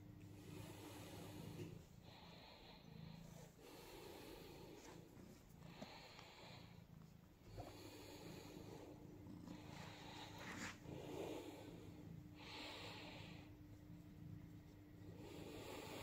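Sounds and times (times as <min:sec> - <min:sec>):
cat purring: 0:00.0 - 0:16.0
hand rubbing fur: 0:09.6 - 0:12.0.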